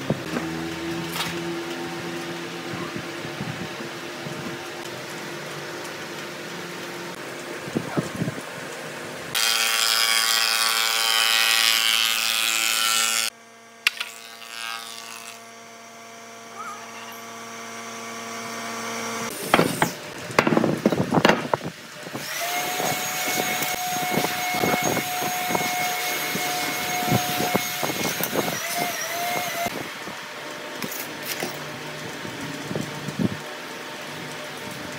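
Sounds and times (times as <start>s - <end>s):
wood planer cutting board: 9.3s - 15.5s, 19.2s - 29.7s.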